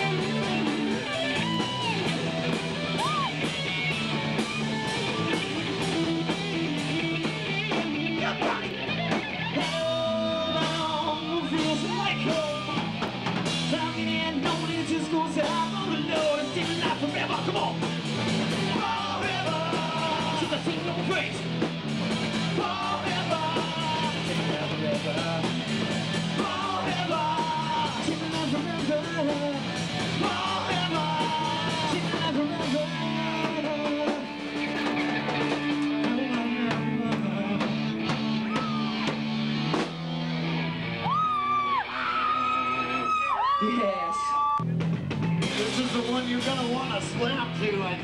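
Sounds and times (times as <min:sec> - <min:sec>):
live rock band playing: 0:00.0 - 0:48.0
person singing: 0:09.6 - 0:12.8, 0:18.7 - 0:21.4, 0:22.6 - 0:25.5, 0:26.4 - 0:29.6, 0:30.2 - 0:34.3.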